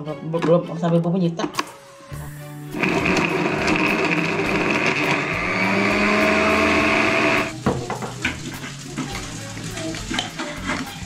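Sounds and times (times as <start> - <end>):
electric blender grinding: 2.8 - 7.5.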